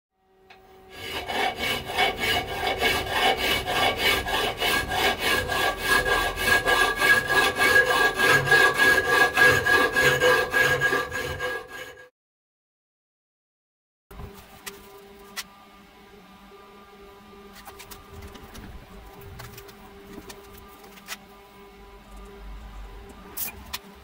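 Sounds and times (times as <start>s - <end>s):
hacksaw cutting steel: 0.9s - 12.1s.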